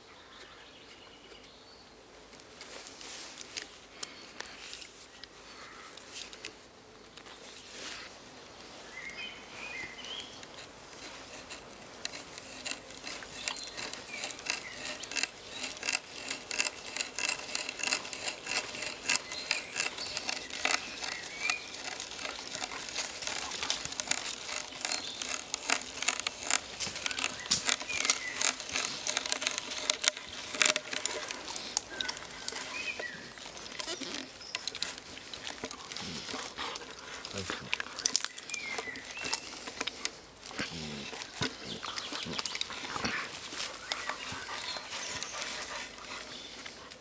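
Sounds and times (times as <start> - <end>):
hand brace boring into wood: 10.5 - 46.0.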